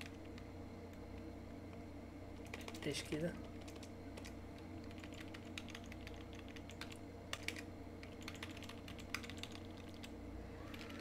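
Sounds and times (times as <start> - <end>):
steady low hum: 0.0 - 11.0
keyboard typing: 2.4 - 2.8, 3.4 - 10.1, 10.7 - 11.0.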